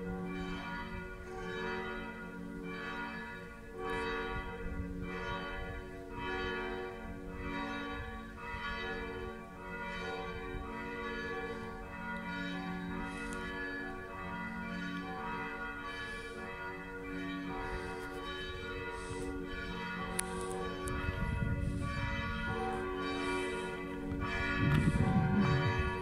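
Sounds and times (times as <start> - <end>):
church bells ringing: 0.0 - 26.0
low rumble on microphone: 24.5 - 26.0.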